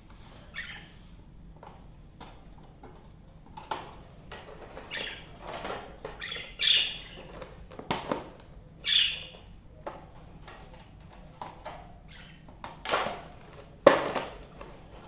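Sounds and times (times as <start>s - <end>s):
budgerigars squawking: 0.5s - 1.0s, 6.2s - 7.3s, 8.8s - 9.4s, 12.1s - 12.4s.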